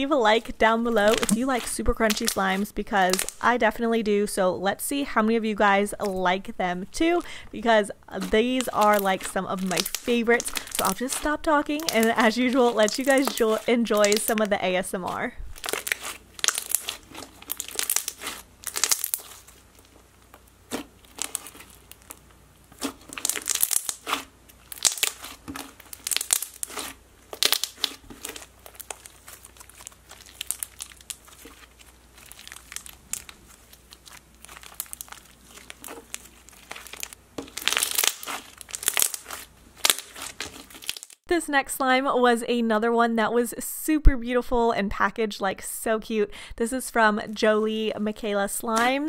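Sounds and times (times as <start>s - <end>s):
slime crunching and popping: 1.0s - 3.4s, 8.2s - 14.5s, 15.5s - 41.3s.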